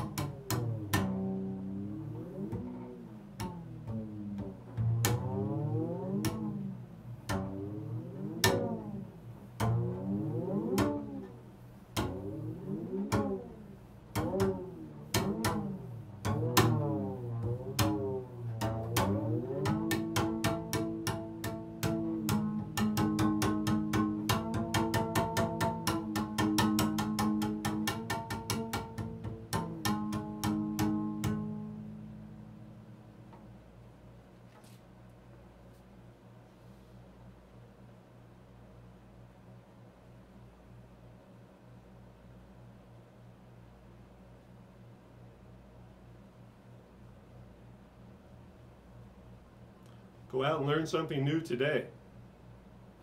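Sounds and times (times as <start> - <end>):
double bass struck with a stick: 0.0 - 34.8.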